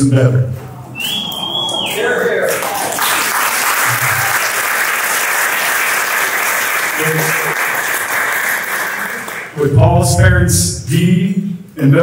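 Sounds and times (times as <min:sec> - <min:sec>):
guests applauding: 0:01.0 - 0:09.6.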